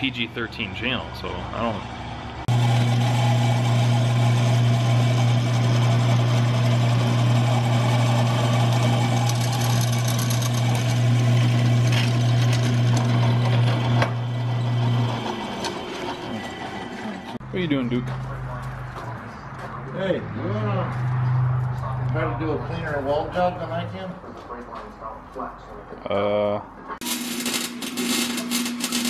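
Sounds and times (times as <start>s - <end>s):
drill press motor hum: 2.5s - 17.4s
drill bit drilling into steel: 2.6s - 15.6s.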